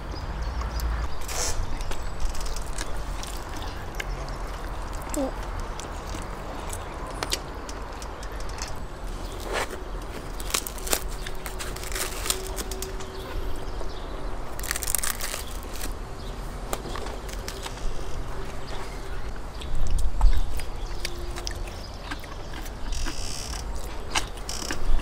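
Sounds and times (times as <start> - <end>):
crusty flatbread tearing: 9.2 - 13.2, 14.5 - 16.0.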